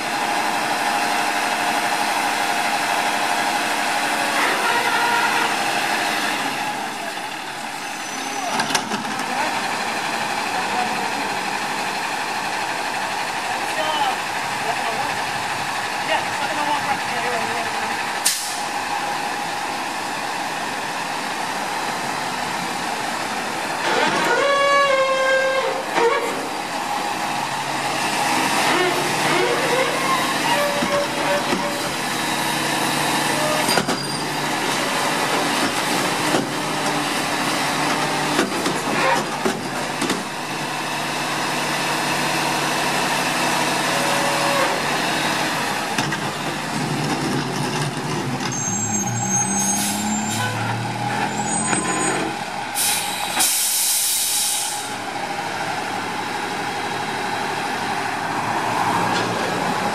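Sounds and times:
garbage truck engine running: 0:25.8 - 0:59.9
brief pitched squeal: 0:48.5 - 0:50.7, 0:51.3 - 0:52.3.

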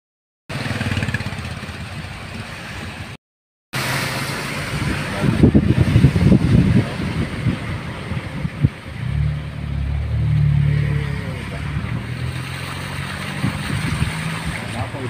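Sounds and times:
tires on wet road: 0:00.5 - 0:03.2, 0:03.8 - 0:15.0
car engine: 0:03.8 - 0:15.0.

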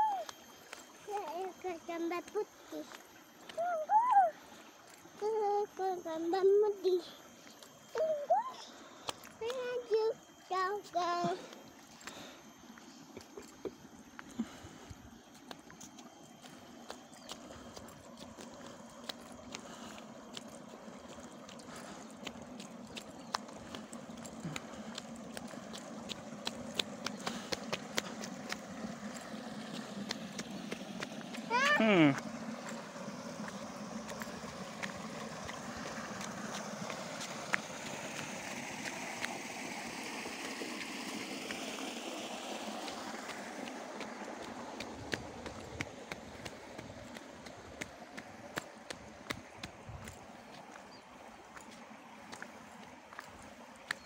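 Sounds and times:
flowing water rushing: 0:00.0 - 0:05.2, 0:07.3 - 0:54.0
footsteps clicking: 0:15.3 - 0:39.5, 0:42.8 - 0:54.0.

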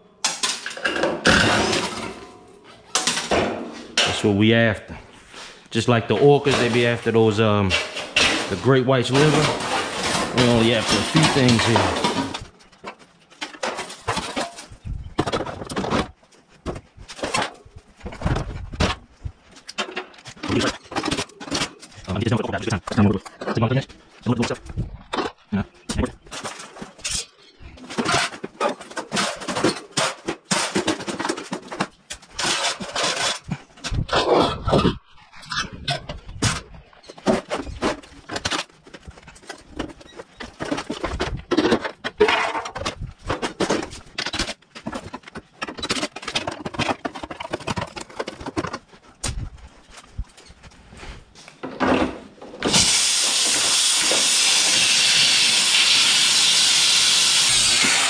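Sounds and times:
sheet metal clanking and scraping: 0:00.2 - 0:04.4, 0:05.9 - 0:16.2, 0:24.6 - 0:49.5
pressurized gas hissing: 0:52.7 - 0:58.0.

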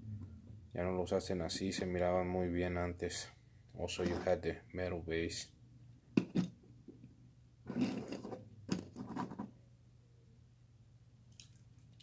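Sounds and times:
toy car scraping on table: 0:04.0 - 0:04.4, 0:07.7 - 0:09.5.

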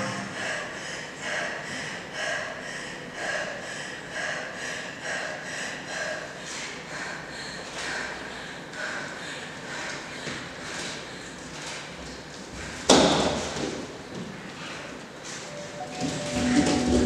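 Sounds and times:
heavy rhythmic breathing: 0:00.0 - 0:12.9.

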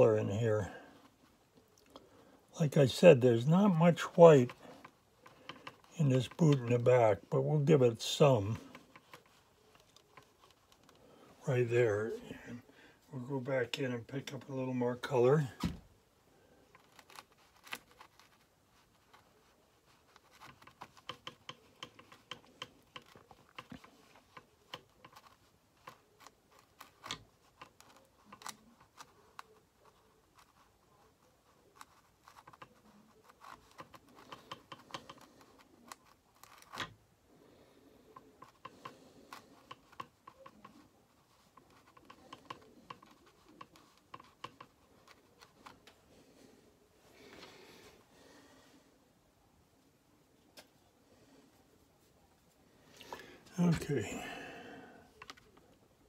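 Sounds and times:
brush scratching on paper: 0:16.7 - 0:36.6, 0:38.4 - 0:45.8.

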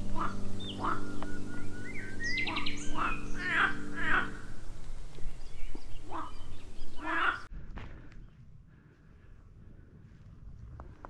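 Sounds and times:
low held music chord: 0:00.0 - 0:06.9
birds harsh calls: 0:00.0 - 0:07.5
bird whistled phrase: 0:00.2 - 0:04.3.

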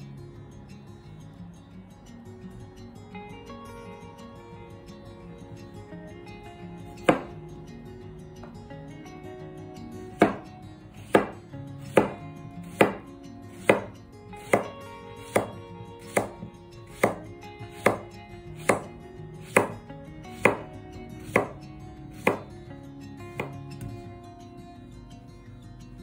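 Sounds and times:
knife chopping on wooden board: 0:07.0 - 0:07.3, 0:10.2 - 0:10.5, 0:11.1 - 0:19.8, 0:20.4 - 0:21.6, 0:22.2 - 0:22.5, 0:23.4 - 0:23.6.

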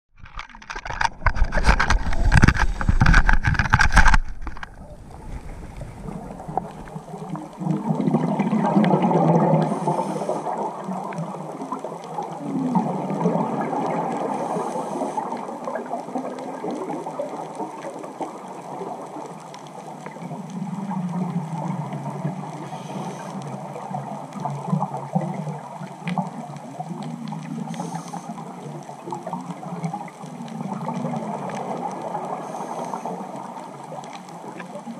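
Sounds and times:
knocking and rubbing on microphone: 0:00.2 - 0:06.4
underwater regulator bubbling: 0:00.2 - 0:11.6.

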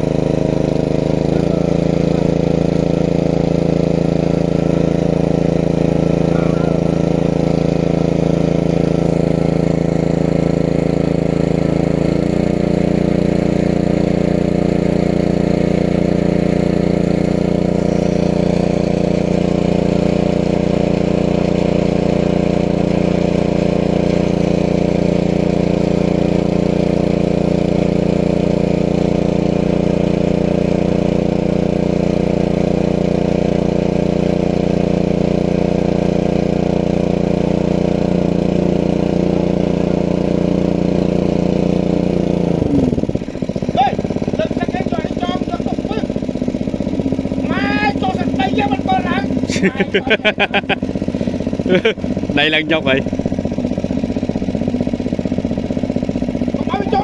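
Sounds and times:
water pump engine running: 0:00.0 - 0:57.0.

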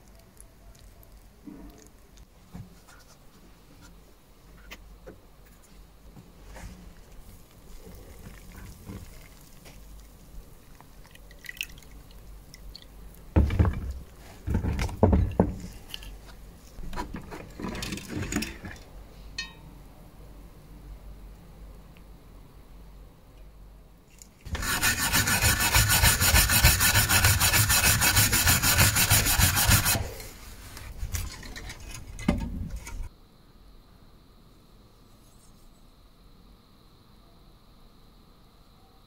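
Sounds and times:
water splashing and dripping: 0:10.7 - 0:12.9.

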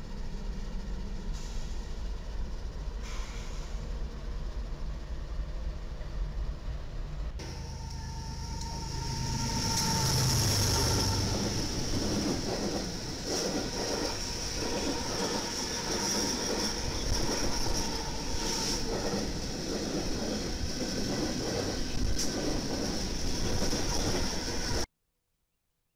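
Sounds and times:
locomotive engine rumble: 0:00.0 - 0:24.8
steel wheels rolling on rails: 0:07.4 - 0:24.9.

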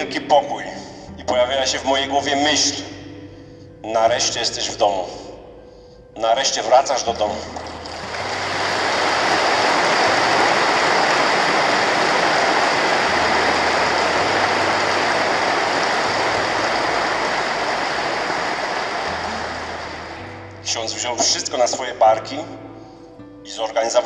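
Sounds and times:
large crowd applauding: 0:07.7 - 0:20.4.

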